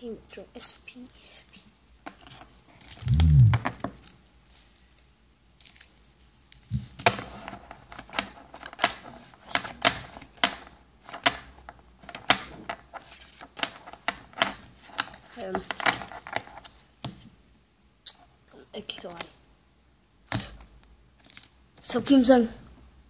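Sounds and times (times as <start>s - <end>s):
low thump: 3.0s - 3.7s.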